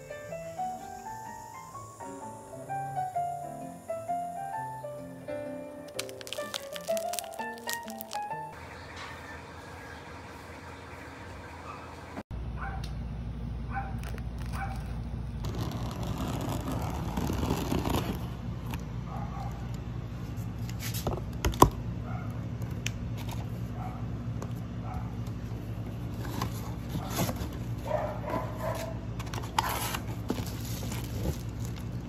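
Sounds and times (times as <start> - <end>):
scissors cutting packing tape: 5.9 - 8.3, 14.0 - 18.2
steady low hum: 8.5 - 32.0
cardboard box being pulled open: 15.4 - 18.3.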